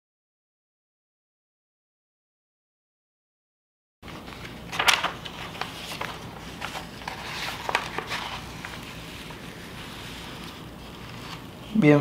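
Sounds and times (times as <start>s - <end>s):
paper pages handled: 4.0s - 11.8s
plastic sheet crinkling: 4.0s - 12.0s.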